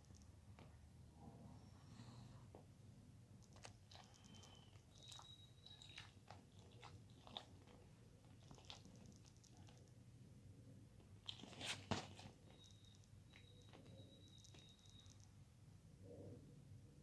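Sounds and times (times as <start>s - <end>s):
faint scattered clicks: 3.4s - 5.3s, 8.3s - 10.0s.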